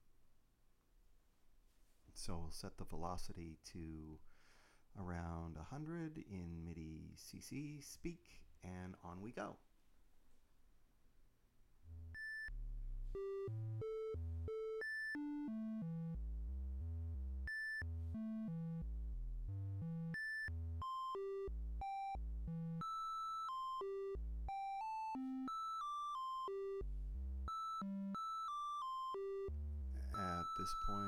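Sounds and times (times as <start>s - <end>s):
synthesizer triangle-wave notes: 11.8s - 31.0s.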